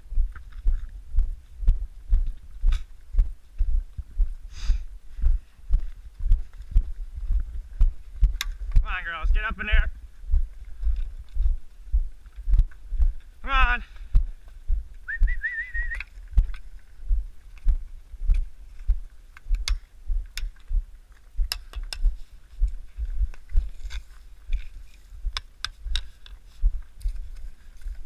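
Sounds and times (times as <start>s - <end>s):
person whistling: 15.1s - 16.0s
small clicks and crunches: 23.3s - 28.0s.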